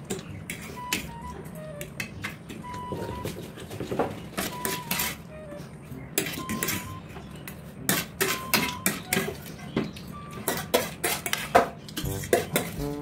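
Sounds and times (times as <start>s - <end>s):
fork scraping squeaks: 0.2s - 13.0s
forks clinking on plates: 4.4s - 5.2s, 6.2s - 9.6s, 10.3s - 13.0s.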